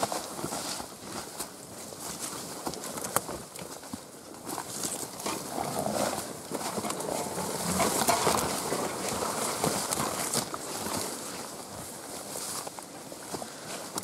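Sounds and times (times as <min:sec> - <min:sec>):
brush scraping against cart: 0:04.6 - 0:11.5.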